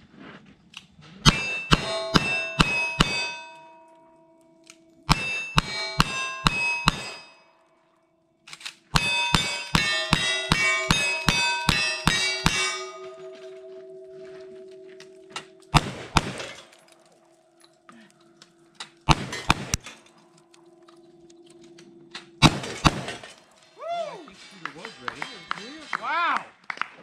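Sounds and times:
steel targets ringing: 1.2s - 7.8s, 8.9s - 17.8s, 21.8s - 25.9s
handgun shots: 15.7s - 16.6s
rifle shots: 15.7s - 16.7s, 19.0s - 20.0s, 22.4s - 23.3s.

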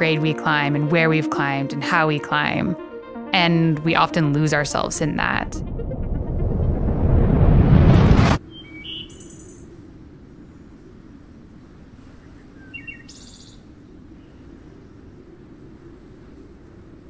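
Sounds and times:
birds chirping: 8.4s - 9.8s.

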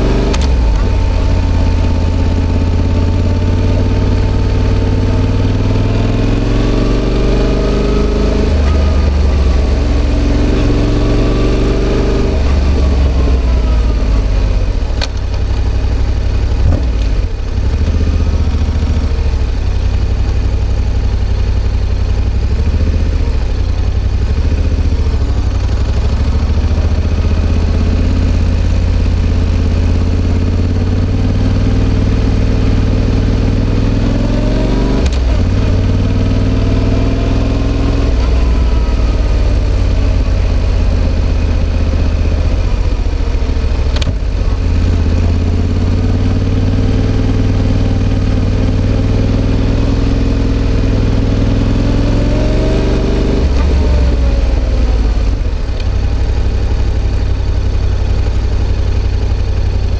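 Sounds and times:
motorcycle engine running: 0.0s - 59.9s
click: 43.9s - 44.2s.

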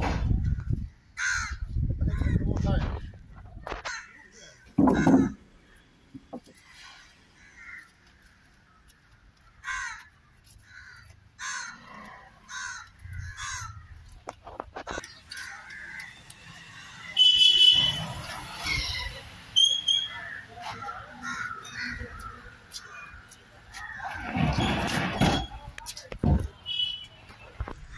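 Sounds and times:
crows cawing: 1.2s - 2.4s, 3.7s - 5.8s, 7.4s - 17.1s, 20.1s - 23.2s
sharp knocks: 4.8s - 5.4s.

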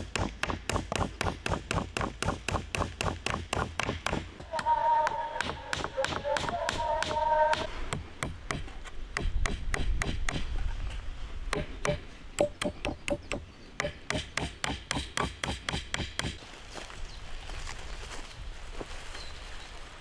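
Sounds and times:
hand tool knocking: 5.4s - 10.4s, 11.5s - 16.4s.

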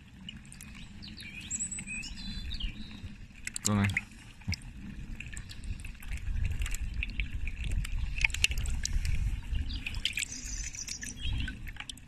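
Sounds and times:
water splashing in a bucket: 3.2s - 12.0s.

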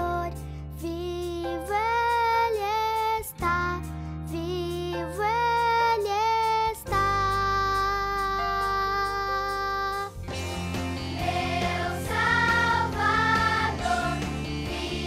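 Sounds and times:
girl singing: 0.0s - 10.2s
instrumental accompaniment: 6.9s - 15.0s.

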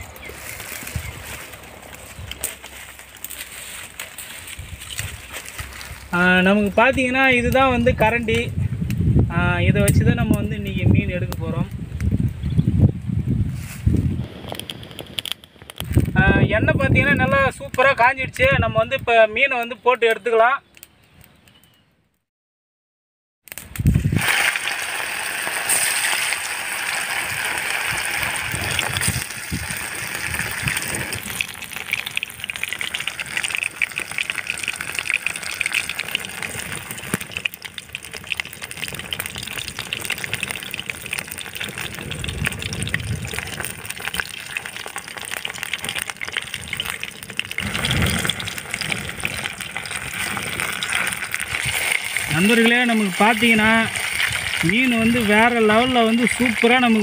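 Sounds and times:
fish deep-frying in oil: 23.5s - 57.0s.

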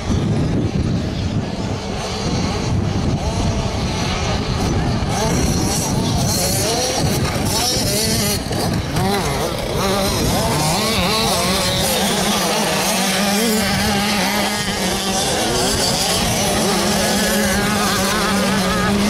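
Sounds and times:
motocross bikes revving: 0.0s - 19.0s.

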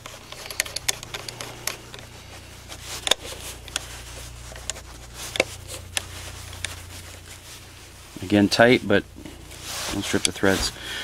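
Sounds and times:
metal clicks and scrapes: 0.0s - 7.3s
low steady hum: 0.0s - 11.0s.

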